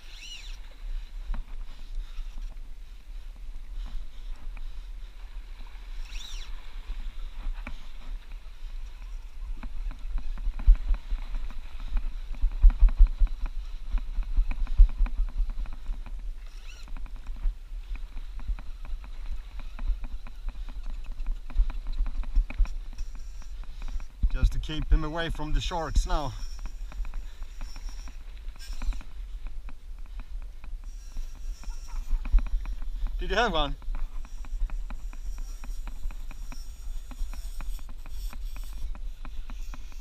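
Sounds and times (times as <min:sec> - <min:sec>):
brief high squeaks: 0:00.0 - 0:00.6.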